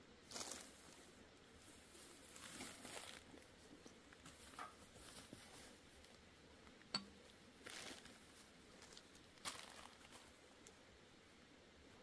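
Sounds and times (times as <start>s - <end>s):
plastic bag rustling: 0.2s - 6.1s, 7.6s - 10.4s.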